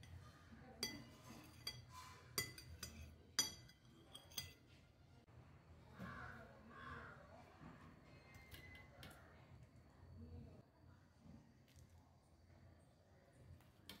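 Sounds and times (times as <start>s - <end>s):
utensil clinking on ceramic plate: 0.8s - 4.8s.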